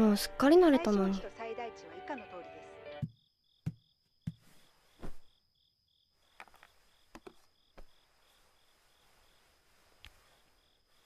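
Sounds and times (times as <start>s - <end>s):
crickets chirping: 2.9s - 11.0s
soft thump: 3.0s - 5.3s.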